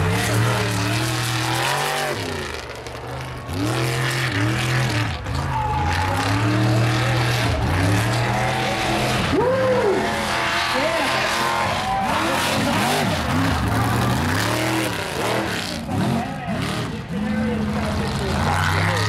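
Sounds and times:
buggy engine revving hard: 0.0s - 19.0s.

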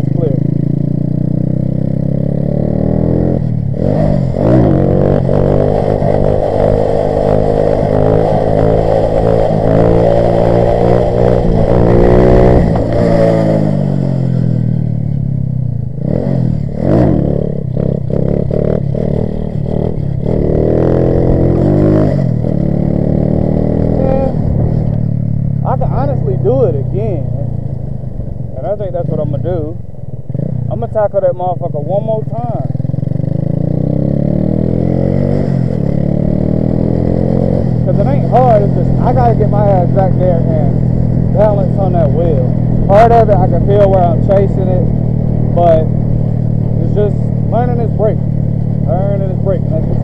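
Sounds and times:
minibike engine revving: 0.0s - 14.8s, 16.0s - 27.2s, 31.8s - 50.0s.

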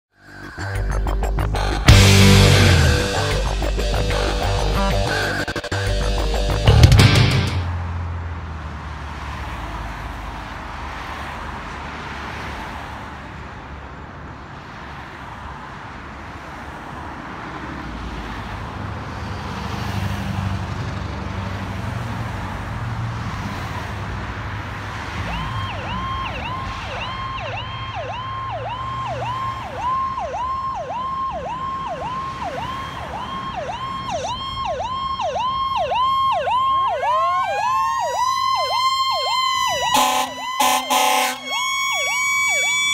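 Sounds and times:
road traffic: 0.0s - 42.9s
electronic warble siren: 0.2s - 7.1s, 25.3s - 42.9s
mechanical siren winding up: 25.4s - 42.9s.

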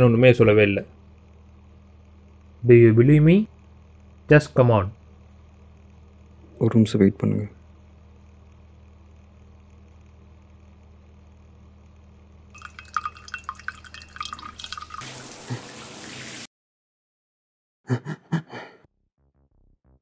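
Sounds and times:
low steady hum: 0.0s - 16.0s
running water rushing: 12.6s - 16.5s
water splashing at a sink: 12.6s - 16.5s.

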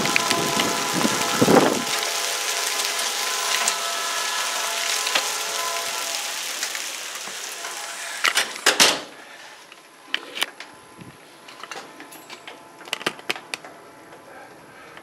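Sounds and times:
heavy rain falling: 0.0s - 9.3s.

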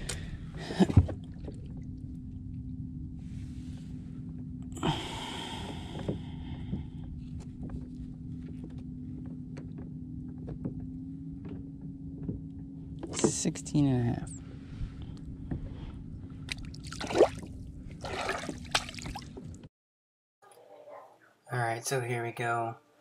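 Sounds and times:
steady low hum: 0.0s - 19.7s.

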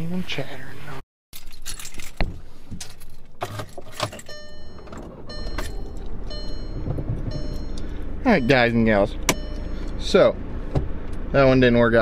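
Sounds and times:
seatbelt warning chime: 4.1s - 10.4s.

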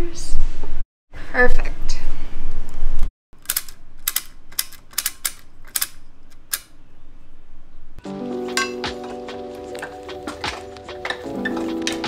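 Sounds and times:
counter mechanical clicks: 3.4s - 6.7s.

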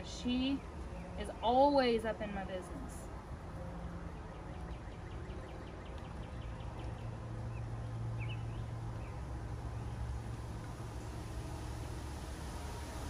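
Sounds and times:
low steady hum: 0.0s - 13.0s
bird chirps: 4.1s - 10.1s.

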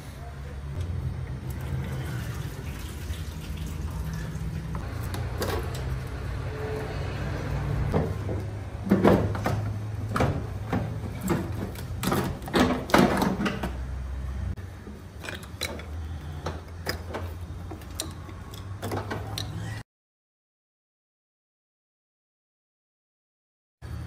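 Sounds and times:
knocks and clatter: 7.9s - 13.9s.

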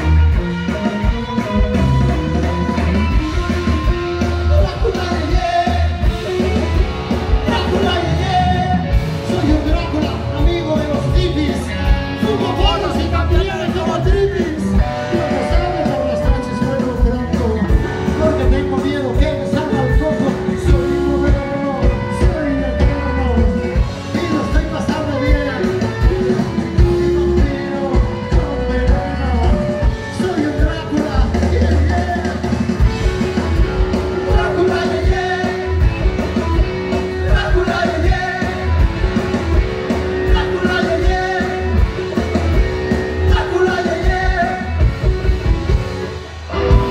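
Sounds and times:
drum beat: 0.0s - 46.9s
electric guitars: 0.0s - 46.9s
person singing: 7.5s - 32.6s, 33.9s - 36.3s, 37.2s - 38.8s.

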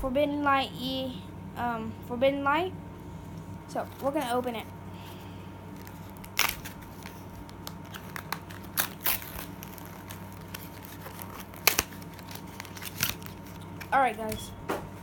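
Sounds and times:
foil wrapper crinkling: 3.8s - 14.3s.

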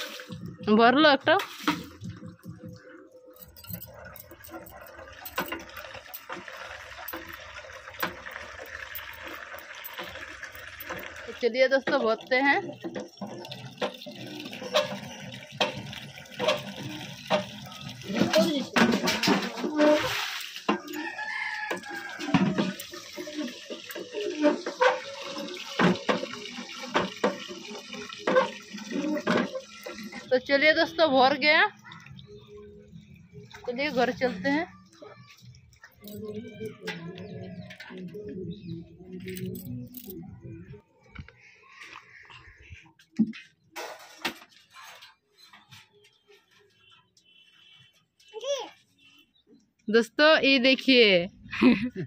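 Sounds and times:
water gushing into plastic bucket: 0.0s - 37.9s
hand pump clanking: 3.4s - 32.4s
rooster crowing: 20.8s - 22.7s.

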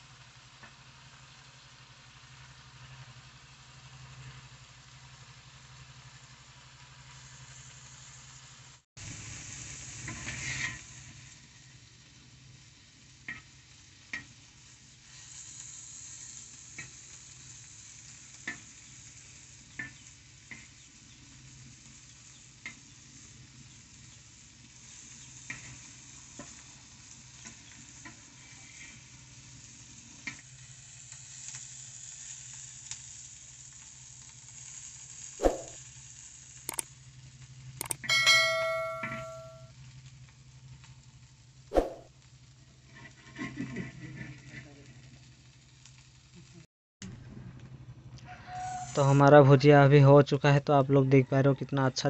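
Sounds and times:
shrimp sizzling in oil: 0.0s - 46.7s, 48.3s - 49.2s
sharp ticks: 37.8s - 39.6s.

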